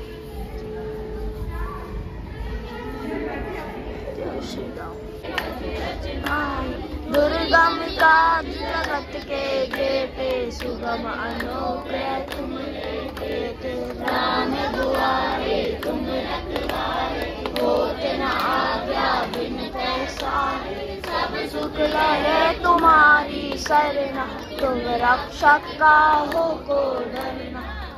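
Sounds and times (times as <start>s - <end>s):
women and children singing: 2.3s - 27.9s.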